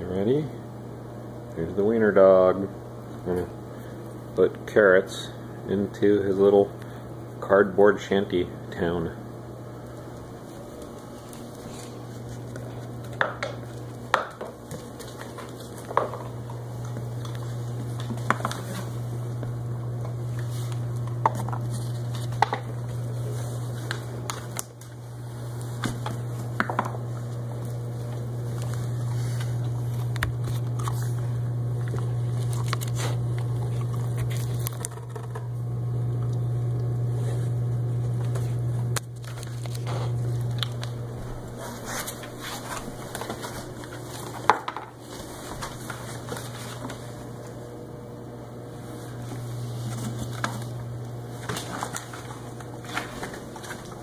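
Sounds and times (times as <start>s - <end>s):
steady low hum: 0.0s - 54.0s
dog rustling cardboard: 41.3s - 47.3s.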